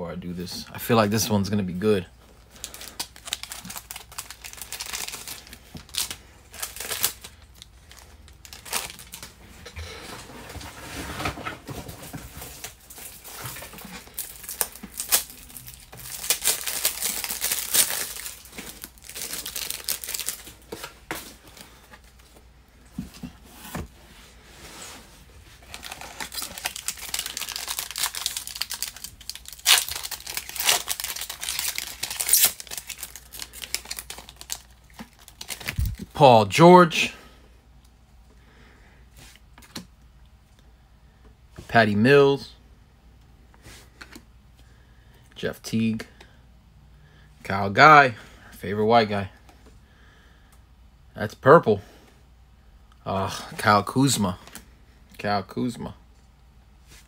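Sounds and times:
foil wrapper crinkling and tearing: 2.6s - 9.4s, 12.5s - 20.7s, 25.6s - 36.1s.

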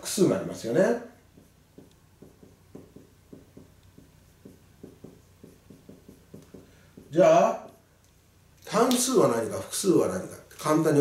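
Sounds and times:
marker pen writing on whiteboard: 0.1s - 7.9s.

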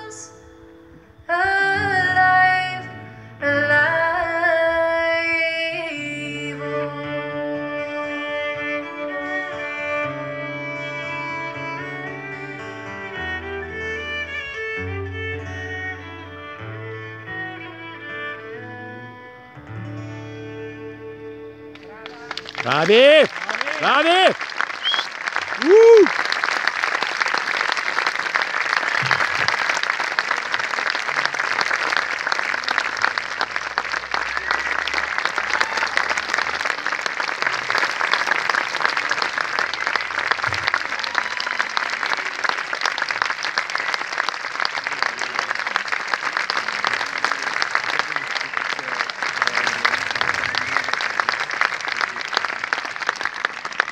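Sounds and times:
audience applauding: 21.7s - 53.9s.

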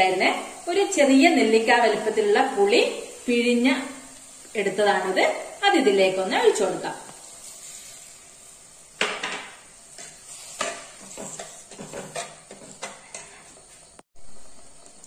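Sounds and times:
faint sizzle of simmering curry: 0.0s - 15.0s
ladle scraping clay pot: 10.5s - 14.0s.

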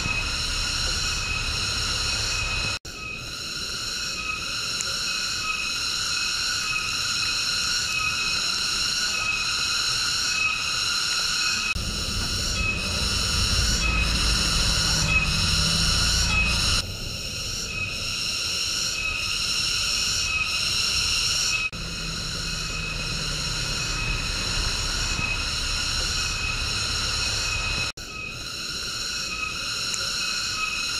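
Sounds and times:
pulsing insect chorus: 0.0s - 30.9s
low rumble: 11.8s - 18.2s.

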